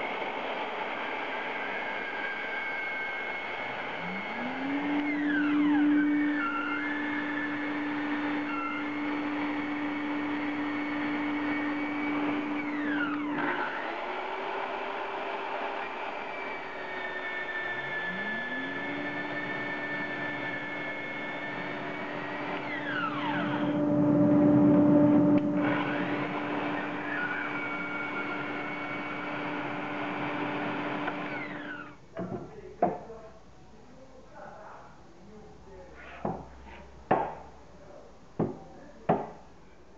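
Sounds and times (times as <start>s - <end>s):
bandsaw cutting timber: 2.0s - 31.9s.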